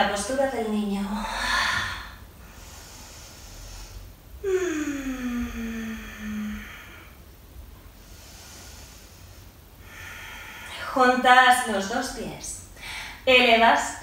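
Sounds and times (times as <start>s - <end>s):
woman breathing softly: 1.1s - 7.2s, 7.8s - 11.0s, 12.6s - 13.3s.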